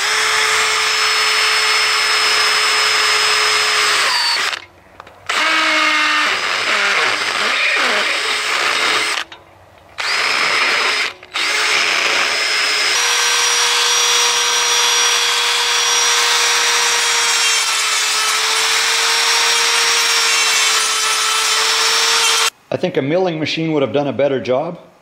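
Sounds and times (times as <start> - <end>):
electric drill whine: 0.0 - 4.7, 5.3 - 9.3, 10.0 - 22.5
grinding metal: 5.3 - 9.4, 10.0 - 22.5.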